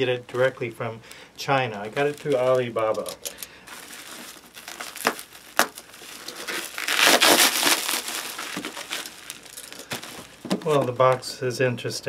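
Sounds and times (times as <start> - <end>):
plastic wrap crinkling and ripping: 1.7 - 11.3.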